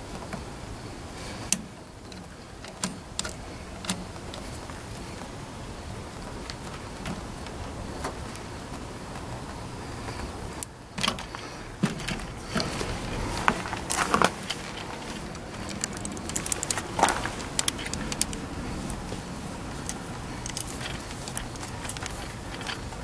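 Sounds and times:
flaring tool metallic clicks: 13.4s - 19.1s, 19.7s - 23.0s.

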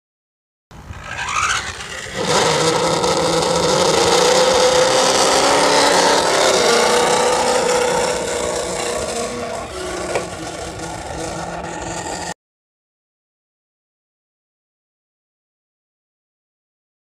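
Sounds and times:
motor running: 0.8s - 12.4s.

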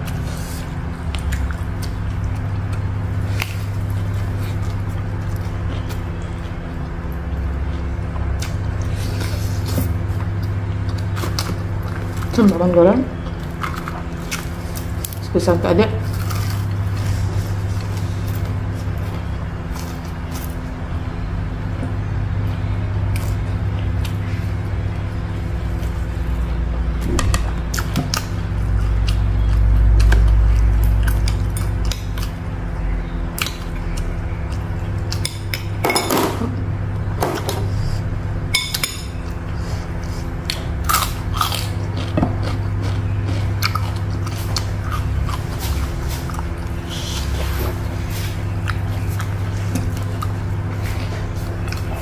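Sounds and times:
person chewing food: 0.0s - 12.6s, 13.2s - 15.3s, 16.0s - 27.0s, 27.6s - 35.8s, 37.4s - 52.0s
steady low hum: 0.0s - 52.0s.

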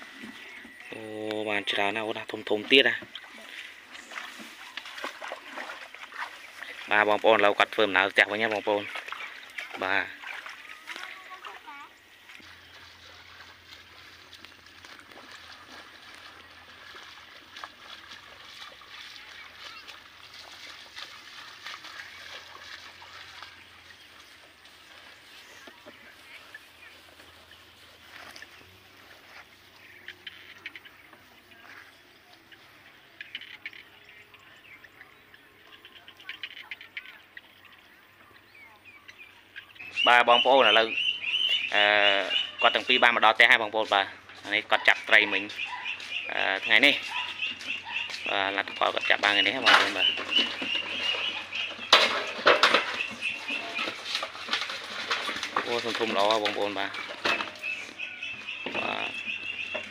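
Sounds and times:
faint chirps and ticks: 19.0s - 59.9s.

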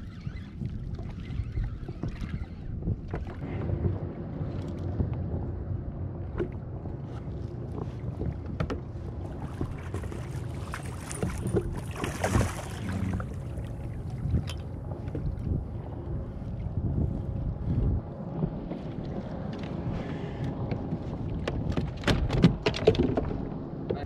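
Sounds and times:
water sloshing against kayak: 0.0s - 23.5s
wind on microphone: 0.0s - 24.0s
fish splashing: 10.1s - 13.5s.

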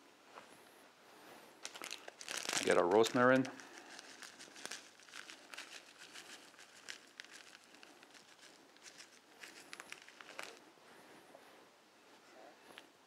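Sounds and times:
dried herbs crumbling: 1.6s - 10.6s.

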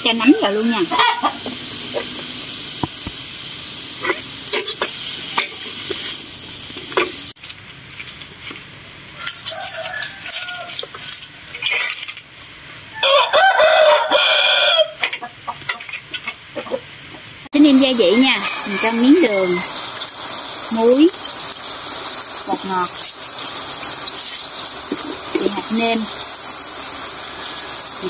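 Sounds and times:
meat sizzling in a wok: 0.0s - 28.0s
rooster crowing: 9.2s - 11.1s, 12.9s - 15.0s, 17.8s - 20.0s.

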